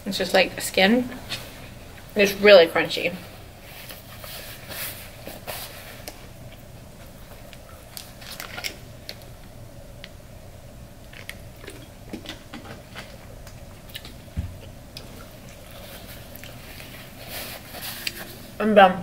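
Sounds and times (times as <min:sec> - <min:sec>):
steady low hum: 0:00.0 - 0:19.0
crunchy chewing: 0:11.0 - 0:18.4.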